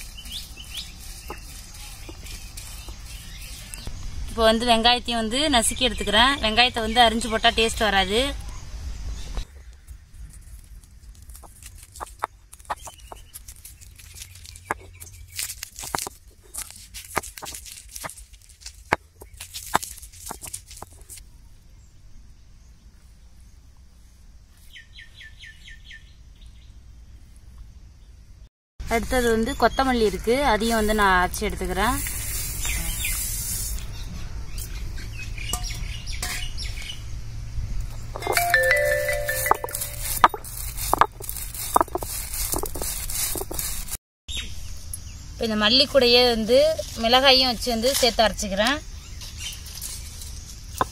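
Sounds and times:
shallots cracking under stone roller: 0:00.0 - 0:03.9, 0:09.4 - 0:21.2, 0:39.7 - 0:44.0, 0:47.6 - 0:50.9
music with held notes: 0:38.3 - 0:40.2.

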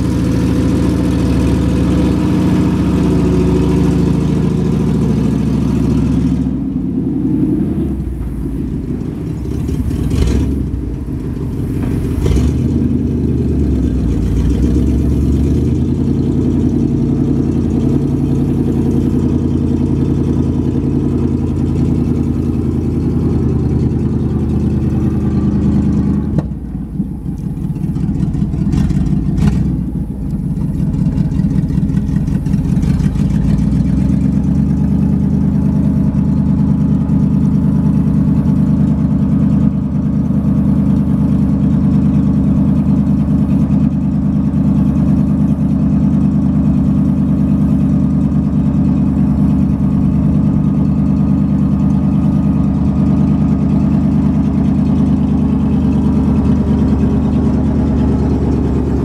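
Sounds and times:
truck engine running: 0:00.0 - 0:59.0
clunks: 0:08.0 - 0:15.0, 0:22.7 - 0:33.6.

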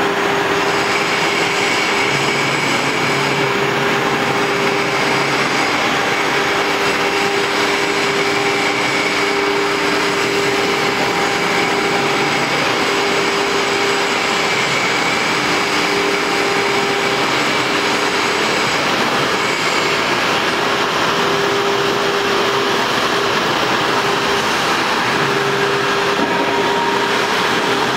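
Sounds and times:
cnc router machine noise: 0:00.0 - 0:27.9
high spindle whine: 0:00.0 - 0:27.9
mid-pitched machine tone: 0:25.1 - 0:27.9.

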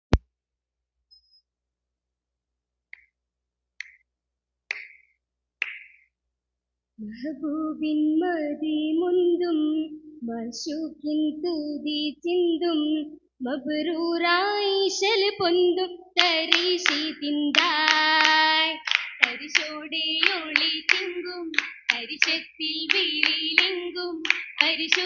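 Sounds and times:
hand claps: 0:02.9 - 0:03.2, 0:03.8 - 0:04.1, 0:04.7 - 0:06.1, 0:16.2 - 0:25.0
girls singing: 0:07.2 - 0:25.0.

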